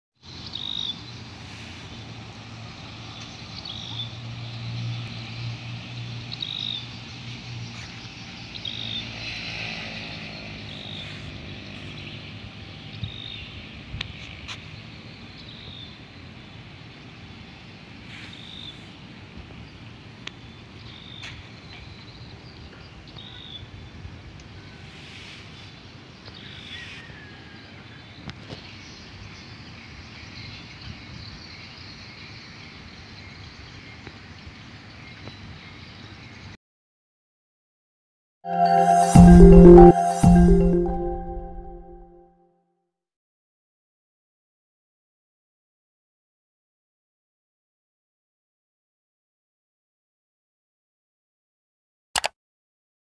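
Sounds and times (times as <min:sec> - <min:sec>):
short high chirp: 0:38.5 - 0:42.2.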